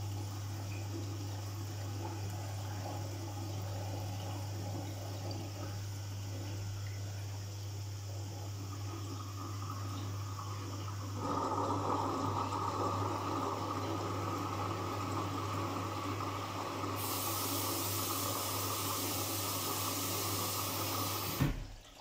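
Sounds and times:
water rushing into washing machine: 0:00.0 - 0:22.0
short thump: 0:21.4 - 0:21.7.

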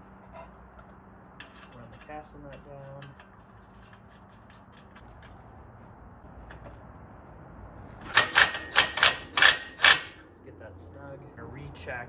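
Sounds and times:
metal nut rubbing and clicking: 0:01.4 - 0:05.4
impact wrench hammering: 0:08.0 - 0:10.2.

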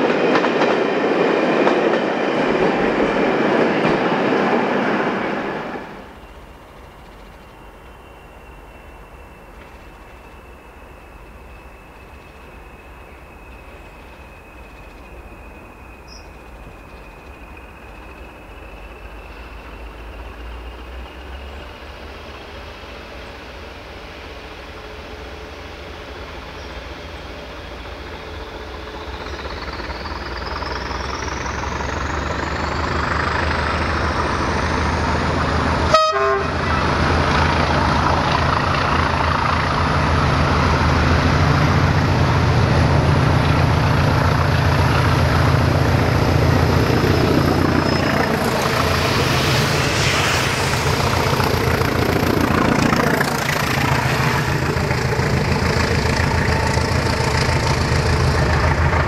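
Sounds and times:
diesel locomotive engine: 0:00.0 - 0:59.0
high whine rising in pitch: 0:36.6 - 0:59.0.

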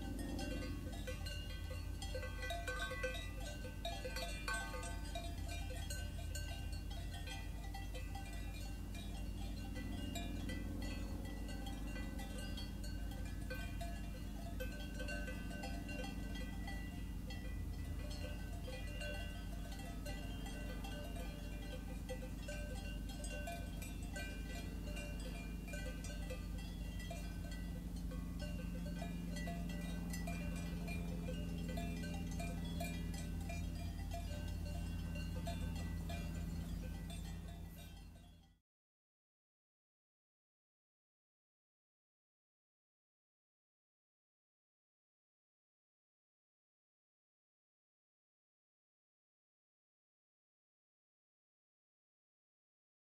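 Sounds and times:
steady low hum: 0:00.0 - 0:38.5
cowbells clanking: 0:00.0 - 0:38.6
low outdoor rumble: 0:00.0 - 0:38.6.

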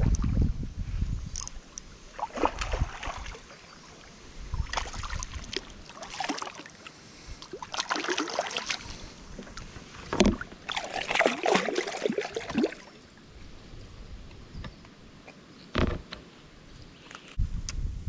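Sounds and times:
fish splashing in water: 0:02.2 - 0:03.5, 0:04.6 - 0:06.8, 0:07.5 - 0:09.0, 0:10.7 - 0:13.0.

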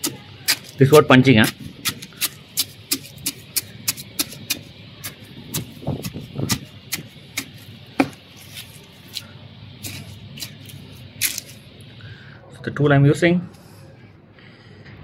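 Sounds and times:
hand tool jabbing into soil: 0:00.0 - 0:00.8, 0:01.4 - 0:09.2, 0:09.8 - 0:11.6.

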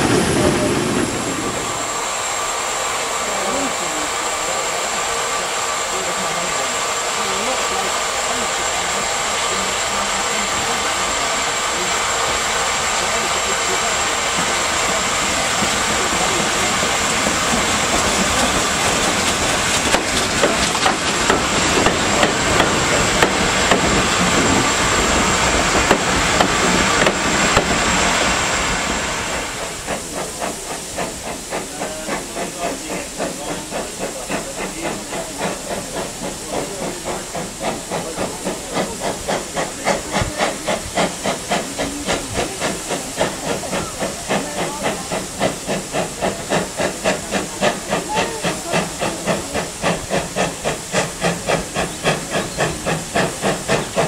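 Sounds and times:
steam hissing: 0:00.0 - 0:54.0
steam locomotive exhaust beats: 0:00.0 - 0:54.0.

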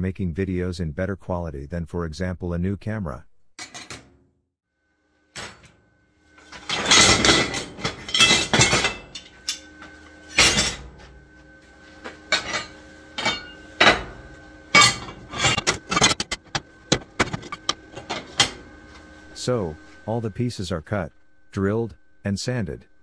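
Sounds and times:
metal clattering on steel worktable: 0:03.6 - 0:04.1, 0:05.4 - 0:05.8, 0:06.4 - 0:11.1, 0:12.0 - 0:18.6
metal clanks and clinks: 0:06.4 - 0:11.0, 0:12.3 - 0:18.6.

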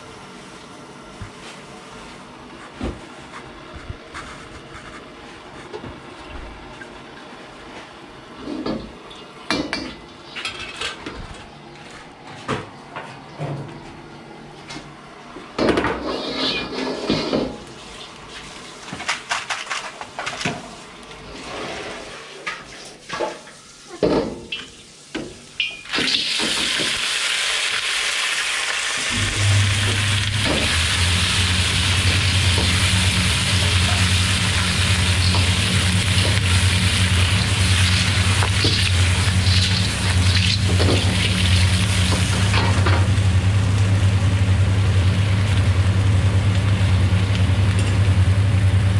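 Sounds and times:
clams sizzling in a wok: 0:25.8 - 0:48.5
steady low hum: 0:29.0 - 0:48.9.

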